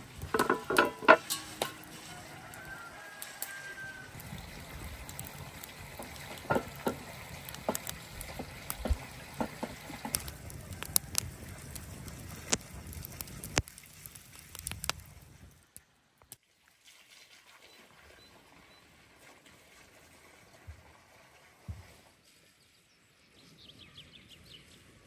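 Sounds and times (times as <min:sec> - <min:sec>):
fire low rush: 0:00.0 - 0:15.8
wood fire crackling and popping: 0:00.0 - 0:16.4.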